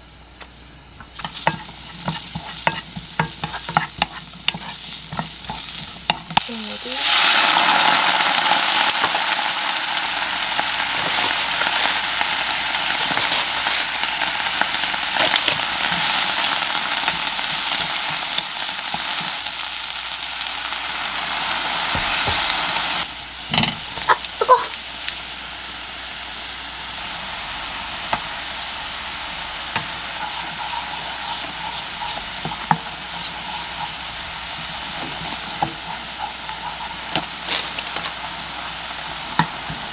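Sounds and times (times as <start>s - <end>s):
food sizzling in a frying pan: 1.0s - 39.9s
wooden spoon stirring: 1.2s - 7.2s, 29.8s - 38.2s.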